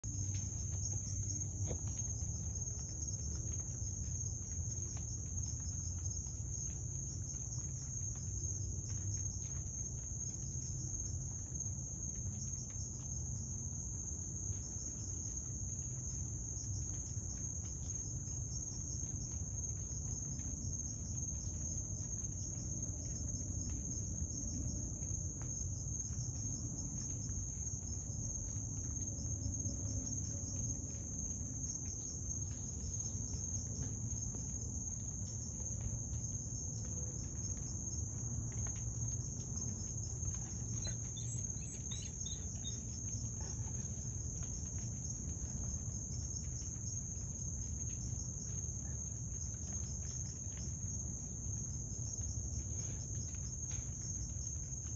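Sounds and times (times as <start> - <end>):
crickets trilling: 0.0 - 54.9.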